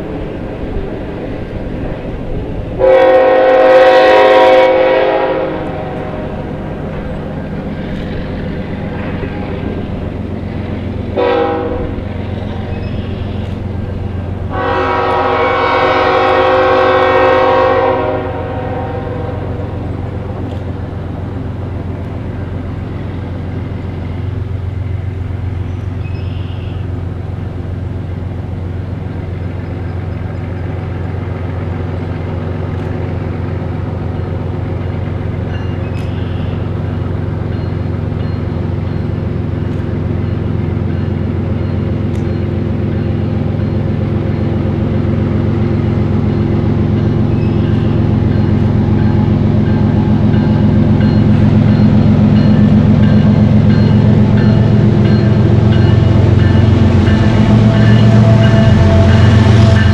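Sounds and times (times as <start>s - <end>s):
low diesel drone: 0.0s - 59.9s
locomotive air horn blasts: 2.8s - 6.4s, 11.2s - 12.0s, 14.5s - 19.8s, 55.7s - 59.9s.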